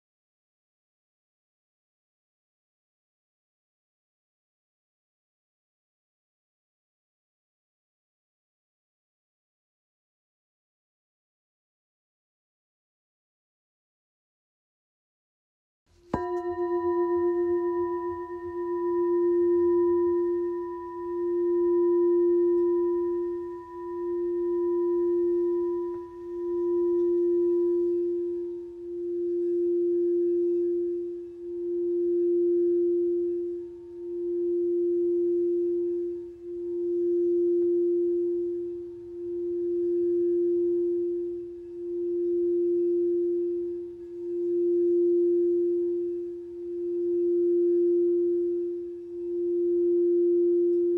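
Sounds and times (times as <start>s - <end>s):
singing bowl ringing: 16.1s - 50.9s.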